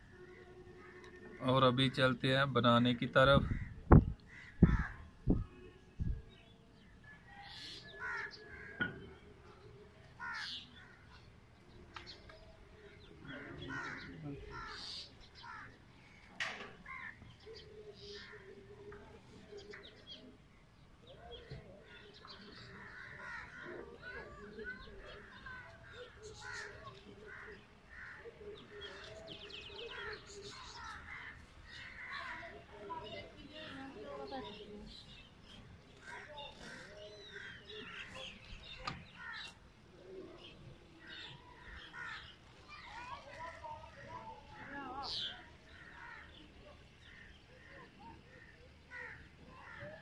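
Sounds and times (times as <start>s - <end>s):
crows cawing: 3.4s - 5.1s, 7.8s - 9.0s, 10.2s - 11.2s, 13.2s - 17.3s, 22.0s - 24.4s, 25.0s - 29.1s, 29.8s - 32.6s, 36.0s - 38.2s, 39.0s - 39.6s, 41.0s - 42.4s, 44.6s - 50.0s.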